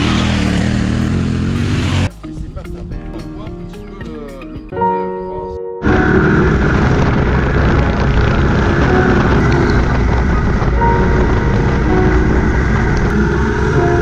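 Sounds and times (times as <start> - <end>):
motorcycle engine running: 0.0 - 2.1, 5.8 - 14.0.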